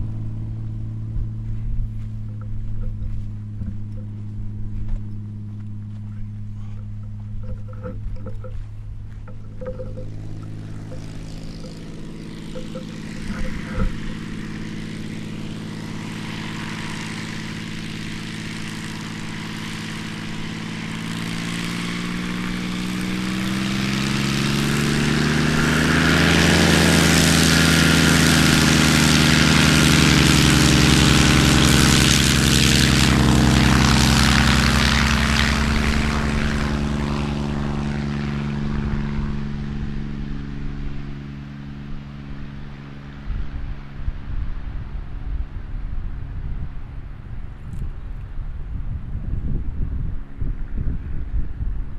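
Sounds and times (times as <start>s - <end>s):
propeller plane engine: 0.0s - 51.9s.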